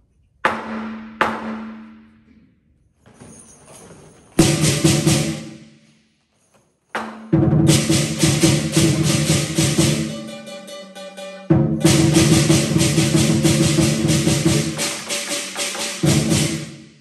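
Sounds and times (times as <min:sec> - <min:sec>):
drum strikes: 0:00.5 - 0:02.2, 0:04.4 - 0:05.8, 0:07.0 - 0:17.0
percussion ensemble hit: 0:00.6 - 0:02.1, 0:04.4 - 0:05.9, 0:07.0 - 0:17.0
cymbal crashes: 0:04.4 - 0:05.9, 0:07.3 - 0:17.0
gong ringing: 0:07.3 - 0:16.7.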